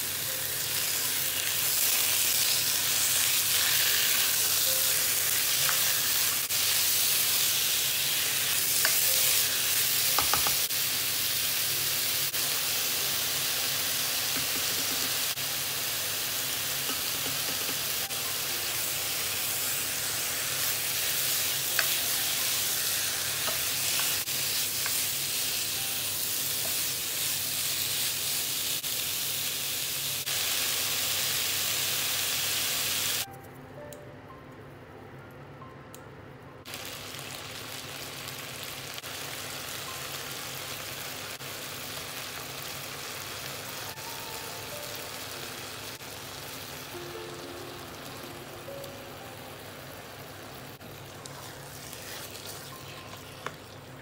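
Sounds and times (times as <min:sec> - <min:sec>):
chicken sizzling in hot oil: 0:00.0 - 0:33.3, 0:36.7 - 0:48.8.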